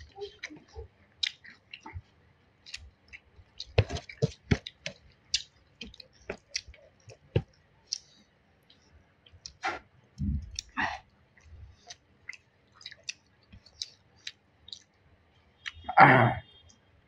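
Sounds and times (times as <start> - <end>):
chewing and mouth smacks: 1.2 - 2.0, 2.6 - 9.6, 11.4 - 15.0.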